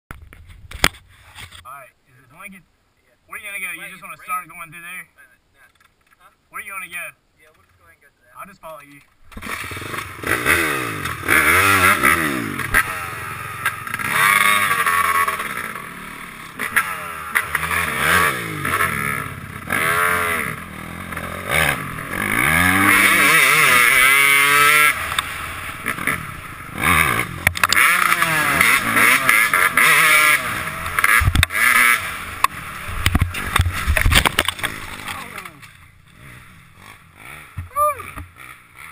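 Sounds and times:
dirt bike engine revving: 0:09.3 - 0:38.9.

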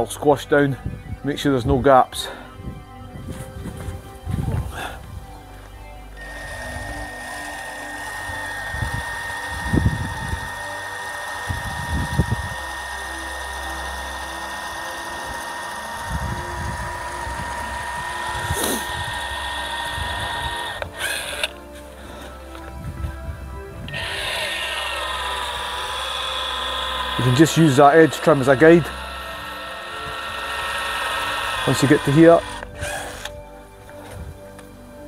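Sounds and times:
caulking gun motor whining: 0:06.1 - 0:33.5.

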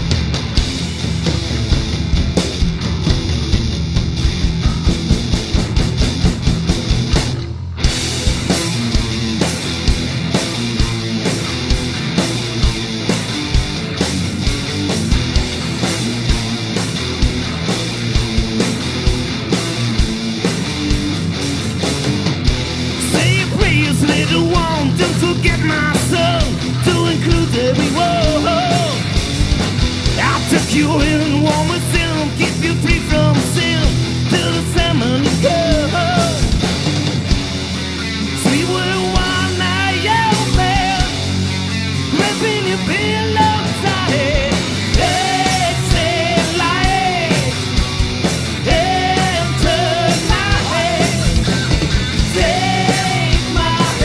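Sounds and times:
rock song with singer and band: 0:00.0 - 0:54.0
drum hits: 0:00.2 - 0:12.0.

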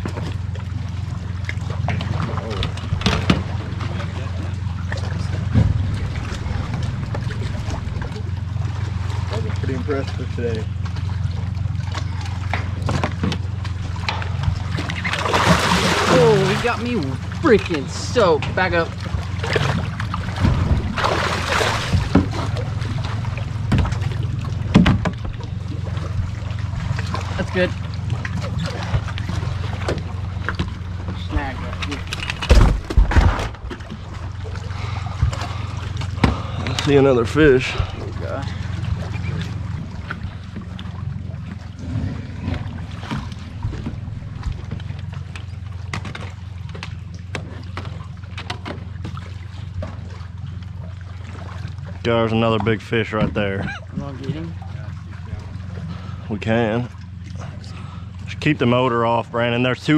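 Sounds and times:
boat motor humming: 0:00.0 - 0:59.9
water rushing and splashing: 0:00.0 - 0:59.9
sharp knocks: 0:24.7 - 0:25.4.

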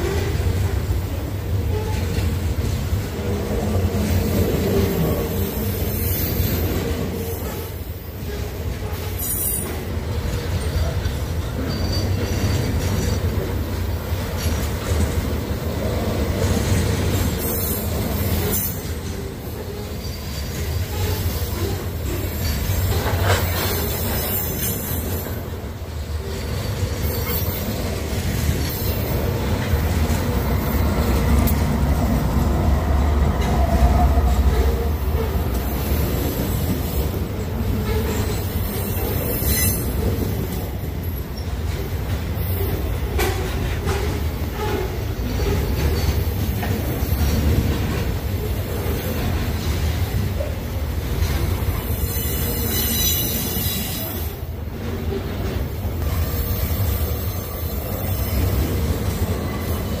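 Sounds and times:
freight train rumbling past: 0:00.0 - 1:00.0
wheel clatter on rails: 0:06.5 - 0:32.5.

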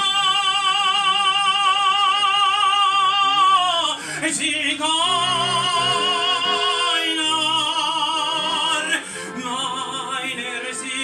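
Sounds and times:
person singing operatically: 0:00.0 - 0:11.0
breath: 0:04.0 - 0:04.2, 0:09.0 - 0:09.4.

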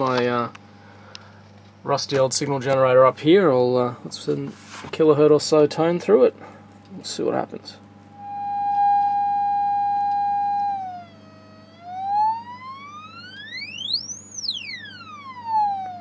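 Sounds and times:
test tone through speakers: 0:08.1 - 0:16.0.

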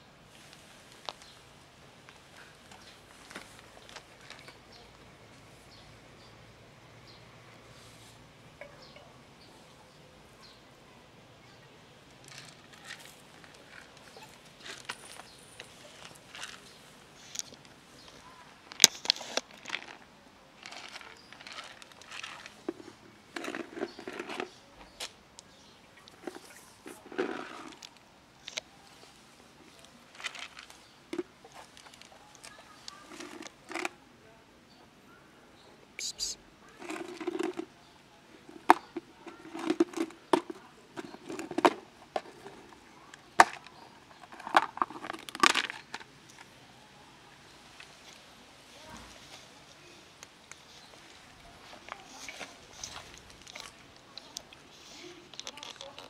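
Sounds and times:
crackling plastic rattles: 0:12.2 - 0:24.6, 0:25.4 - 0:28.6, 0:29.7 - 0:34.0, 0:36.8 - 0:37.7, 0:38.4 - 0:46.6, 0:50.2 - 0:56.0
plastic container scraping and rustling: 0:12.2 - 0:24.6, 0:26.1 - 0:34.0, 0:36.7 - 0:37.7, 0:38.4 - 0:46.5, 0:50.6 - 0:56.0
cats chewing: 0:50.2 - 0:56.0.

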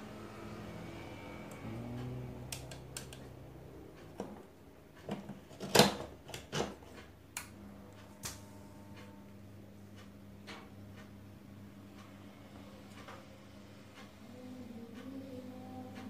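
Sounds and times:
geared motor humming: 0:00.0 - 0:16.0.

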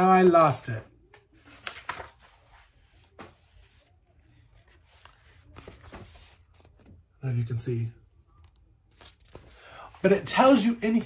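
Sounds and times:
book pages turning: 0:01.1 - 0:07.0, 0:08.3 - 0:11.0
paper flicks: 0:01.5 - 0:02.3.

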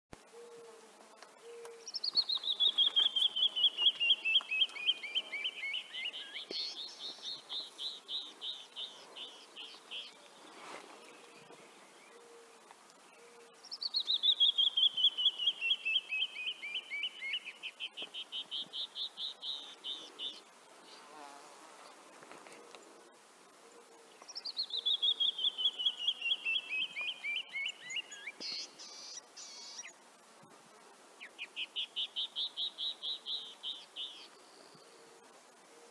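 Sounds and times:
wren singing whistled notes: 0:01.4 - 0:10.2, 0:13.6 - 0:21.1, 0:24.2 - 0:30.0, 0:31.2 - 0:34.9.

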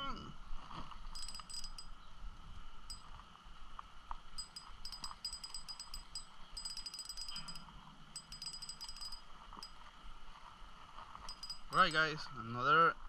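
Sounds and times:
fishing reel clicking: 0:01.2 - 0:01.9, 0:04.4 - 0:07.6, 0:08.2 - 0:09.2, 0:11.3 - 0:12.0.

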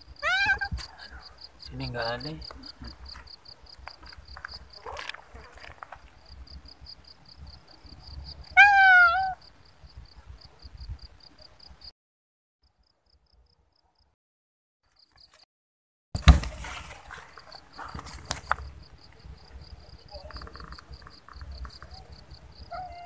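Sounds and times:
insects trilling: 0:00.0 - 0:11.9, 0:17.0 - 0:23.0
cat meowing: 0:00.2 - 0:00.9, 0:08.5 - 0:09.4, 0:22.7 - 0:23.0.

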